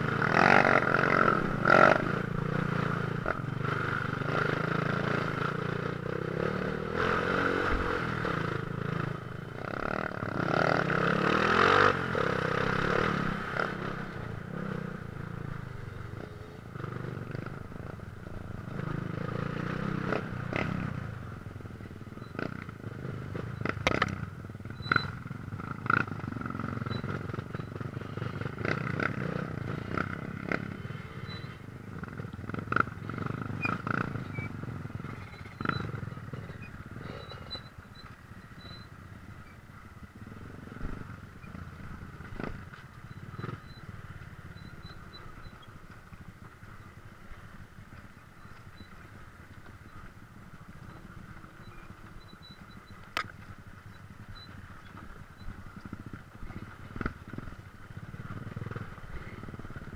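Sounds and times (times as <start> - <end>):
dirt bike engine revving: 0.0 - 18.0, 24.8 - 37.7.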